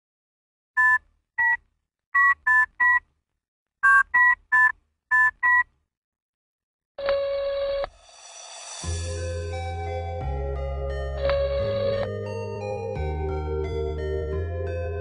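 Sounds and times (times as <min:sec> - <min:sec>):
telephone keypad touch-tones: 0:11.2 - 0:12.1.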